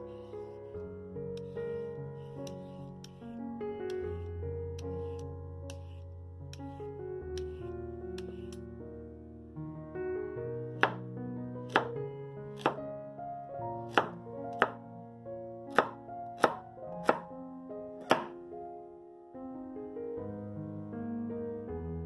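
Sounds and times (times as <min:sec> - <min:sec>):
background music: 0:00.0 - 0:22.0
knife chopping on cutting board: 0:10.8 - 0:11.0, 0:11.7 - 0:12.0, 0:12.6 - 0:12.8, 0:13.9 - 0:14.8, 0:15.7 - 0:17.3, 0:18.0 - 0:18.4.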